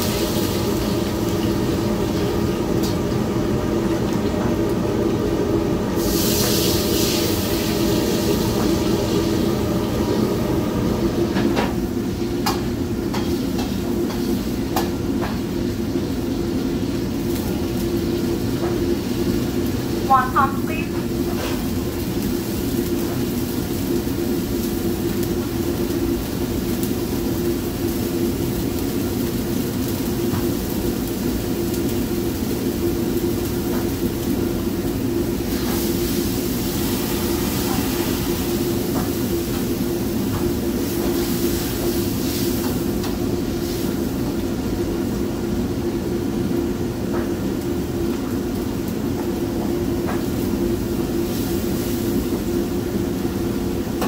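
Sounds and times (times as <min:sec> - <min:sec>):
low mechanical drone: 0:00.0 - 0:14.0, 0:32.8 - 0:41.9.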